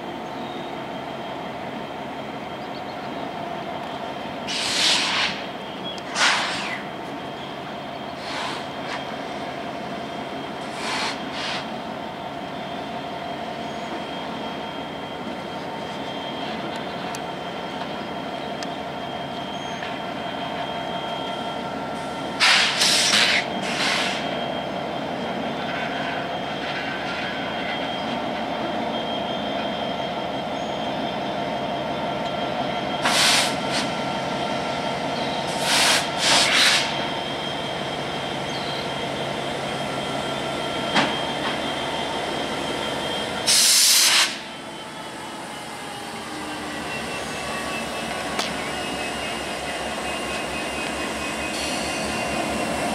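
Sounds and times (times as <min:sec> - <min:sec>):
diesel locomotive engine drone: 0:00.0 - 0:52.9
loud hissing bursts: 0:33.0 - 0:33.9, 0:43.5 - 0:44.4.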